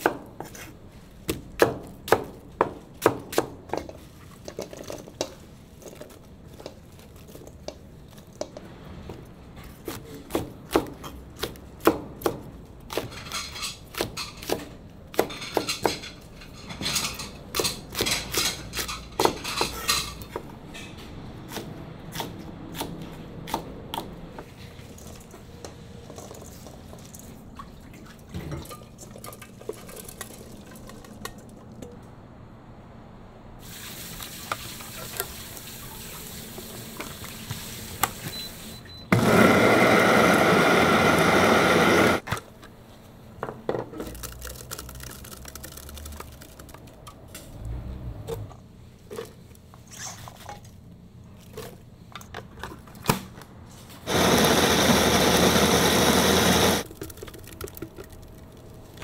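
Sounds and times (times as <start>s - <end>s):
dishes and utensils clattering: 15.2s - 21.0s.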